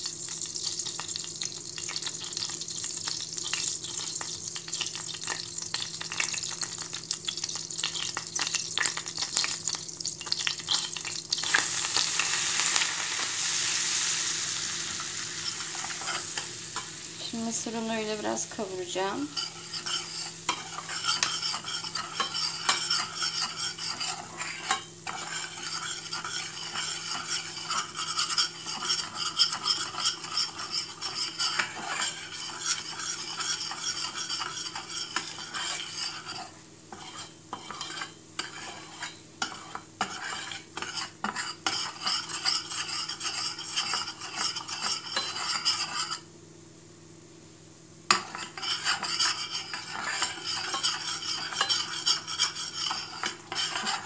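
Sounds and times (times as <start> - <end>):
flour sizzling in butter: 0.0 - 46.3, 48.1 - 54.0
metal spoon scraping steel pot: 19.3 - 46.2, 48.1 - 54.0.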